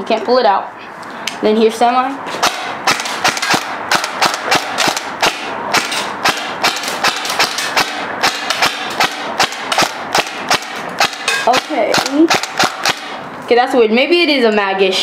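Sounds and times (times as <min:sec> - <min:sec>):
airsoft rifle shots: 0:02.4 - 0:13.2.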